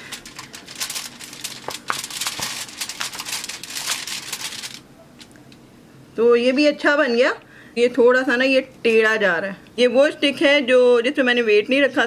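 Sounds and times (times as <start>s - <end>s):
silicone mold crackling: 0.0s - 5.4s.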